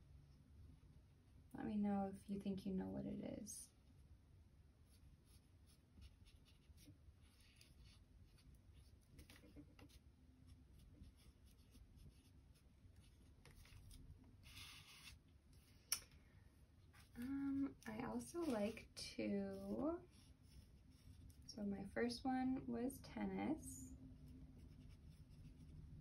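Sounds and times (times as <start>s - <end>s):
pencil scratching on paper: 4.9s - 10.0s, 10.7s - 15.2s, 24.4s - 25.8s.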